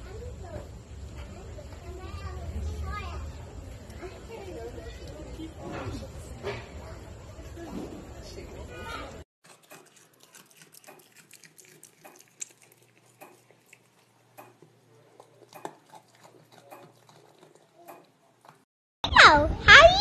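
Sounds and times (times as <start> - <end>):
animal chewing crumbly food: 9.4 - 18.7.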